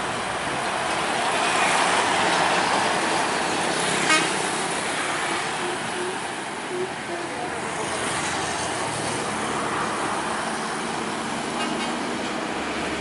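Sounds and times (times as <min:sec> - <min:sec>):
bus horn toot: 0:04.0 - 0:04.5.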